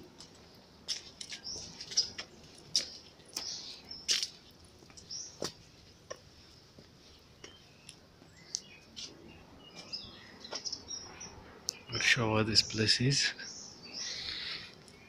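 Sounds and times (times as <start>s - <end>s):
high bird chirps: 7.4s - 15.0s.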